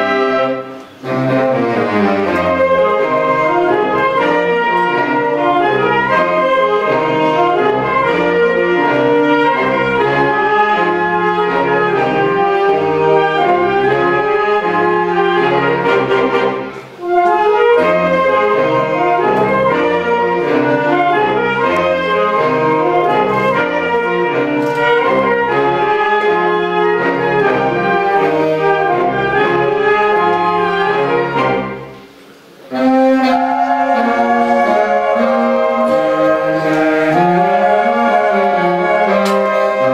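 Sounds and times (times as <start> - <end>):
wind band playing: 0.0 - 39.9.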